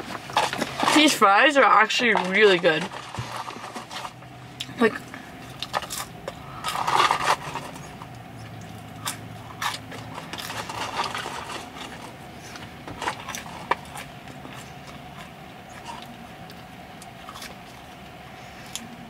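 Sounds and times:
chewing fries: 0:00.0 - 0:19.0
paper cup rustling: 0:01.9 - 0:04.2, 0:06.7 - 0:08.0, 0:10.0 - 0:13.8.

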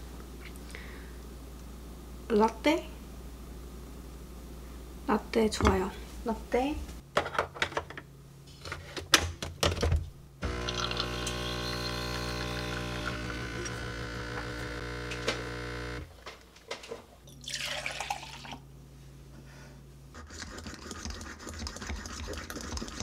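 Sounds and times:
milk pouring: 0:10.4 - 0:14.6, 0:17.3 - 0:18.6
milk frother plunger pumping: 0:10.4 - 0:16.0, 0:20.2 - 0:23.0
espresso machine pump humming: 0:10.4 - 0:16.1.

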